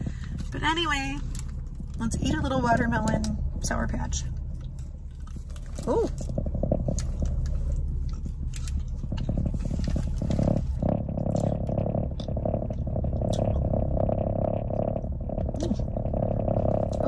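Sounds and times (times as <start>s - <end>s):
steady low hum: 0.0s - 17.0s
wet chewing clicks and smacks: 4.3s - 13.8s.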